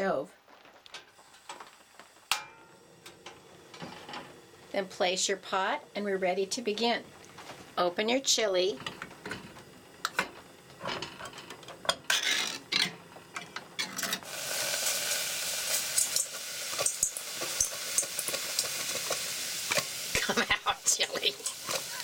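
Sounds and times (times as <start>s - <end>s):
camp stove hissing: 0.0s - 22.0s
crank can opener grinding: 10.0s - 14.3s.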